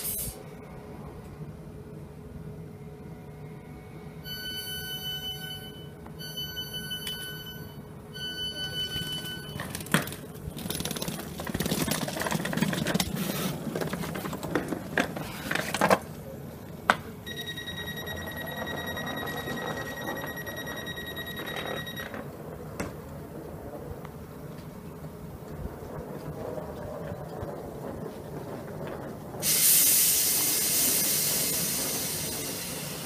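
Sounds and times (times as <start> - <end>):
train door warning tone: 4.0 - 9.8, 17.2 - 22.6, 29.4 - 33.0
knocks and clatter of boarding: 9.2 - 16.2, 16.8 - 29.5.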